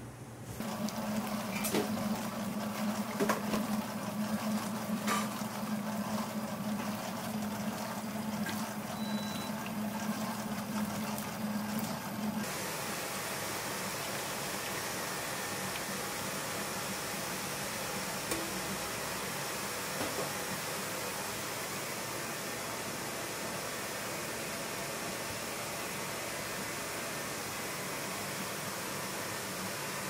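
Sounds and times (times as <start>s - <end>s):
stand mixer motor humming: 0.6s - 23.6s.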